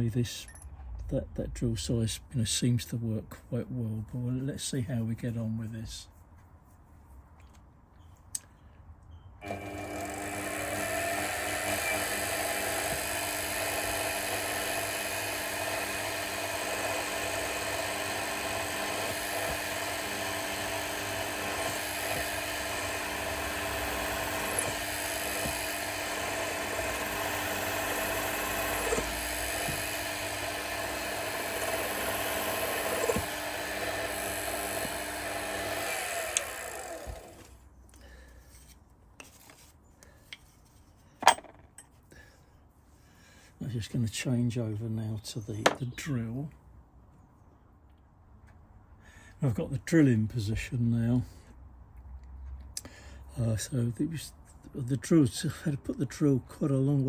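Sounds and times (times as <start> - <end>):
milling machine spindle whining hum: 9.4 - 37.5.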